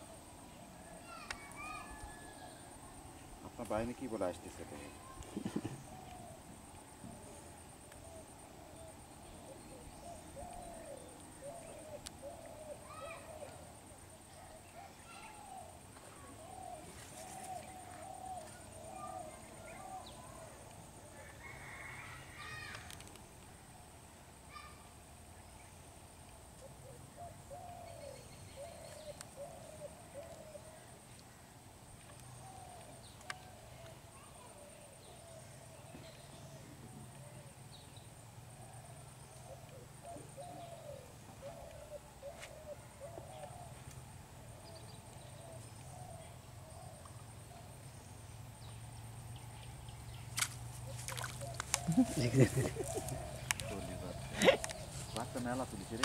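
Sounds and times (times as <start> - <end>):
bird cooing: 4.2 - 22.0, 26.6 - 30.9, 38.6 - 43.9, 50.9 - 56.0.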